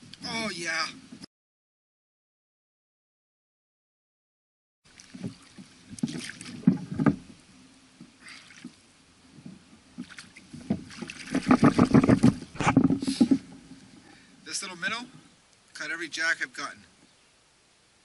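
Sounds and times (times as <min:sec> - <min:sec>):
water splash: 0:04.9 - 0:07.2, 0:10.0 - 0:13.2
knocks against a kayak: 0:06.0 - 0:07.3, 0:09.4 - 0:13.5.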